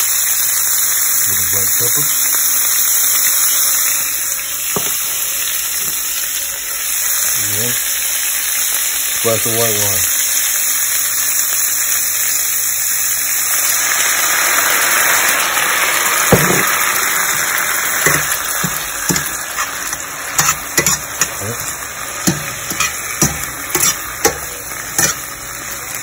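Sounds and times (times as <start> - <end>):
beans sizzling in a skillet: 0.0 - 26.0
metal tongs clicking on pan: 18.0 - 25.3.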